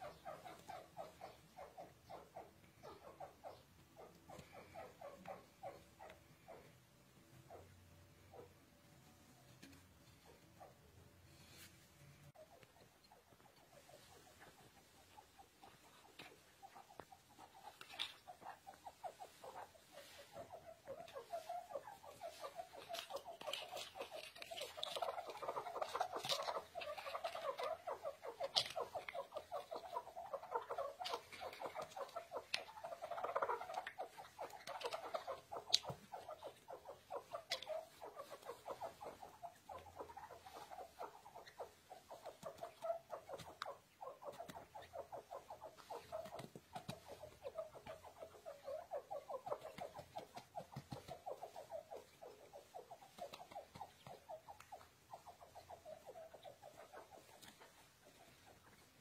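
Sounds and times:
chicks peeping: 12.3s - 59.0s.

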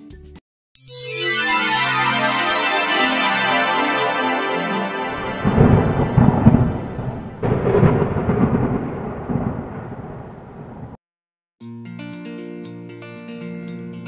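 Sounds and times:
crackling thunder rumble: 5.1s - 11.0s.

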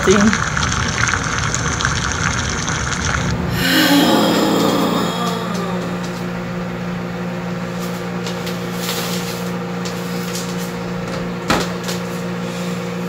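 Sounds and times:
low motor hum: 0.0s - 8.4s.

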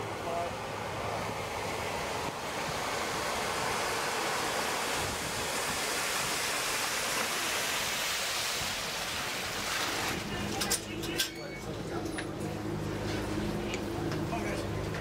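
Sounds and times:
rush of churned water: 0.0s - 11.2s.

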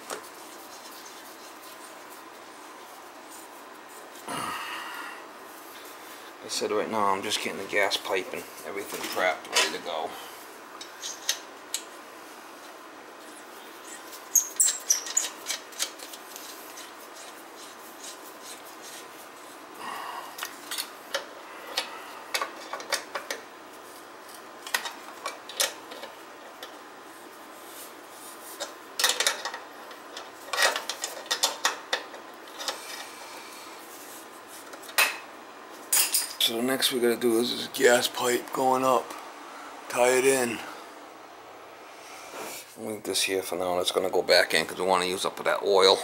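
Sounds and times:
metallic clicks and scraping of tools: 13.9s - 18.6s.

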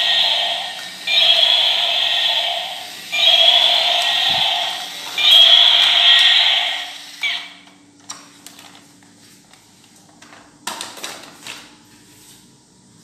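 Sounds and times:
loud sound: 0.0s - 7.5s.

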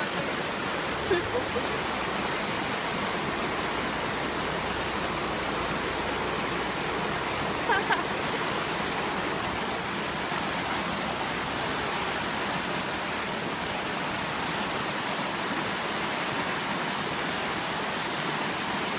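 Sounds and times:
floodwater rushing: 0.0s - 18.9s.

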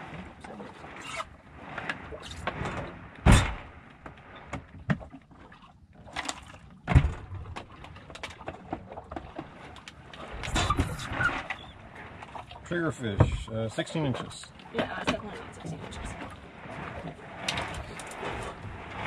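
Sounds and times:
loud thumps on a boat: 2.5s - 5.1s, 6.8s - 9.6s.

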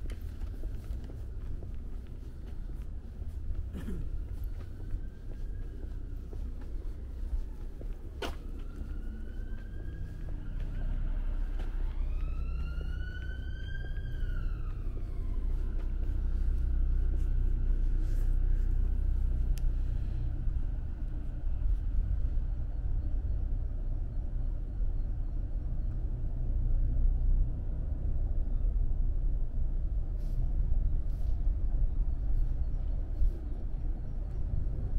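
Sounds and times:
low rumble: 0.0s - 34.9s
siren wailing: 4.6s - 17.0s.

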